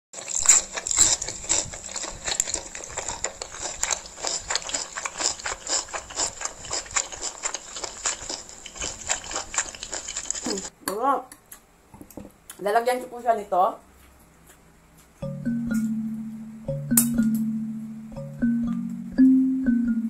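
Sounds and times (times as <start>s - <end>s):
open-mouthed chewing: 0.2s - 10.7s
slurping noodles: 0.2s - 10.7s.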